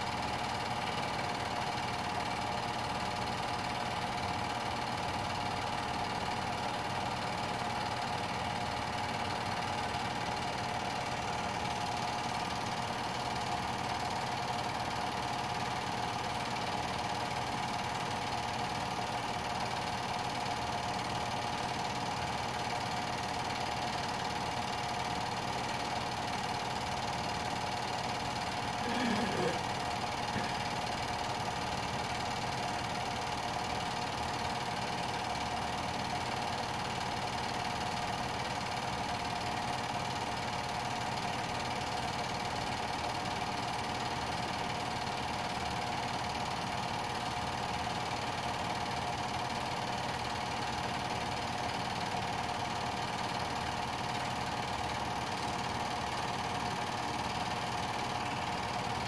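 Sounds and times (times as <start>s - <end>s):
film projector whirring: 0.0s - 59.0s.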